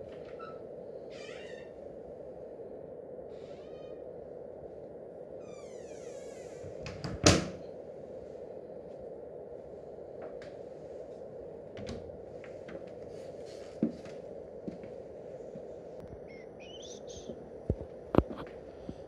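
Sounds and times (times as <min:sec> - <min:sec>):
cupboard door creaking: 0:00.2 - 0:01.7.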